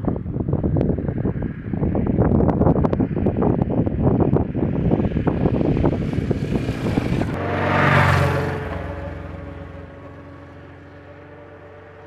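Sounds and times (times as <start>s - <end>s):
wind buffeting microphone: 0.0s - 12.0s
motorcycle engine pulling away: 4.8s - 12.0s.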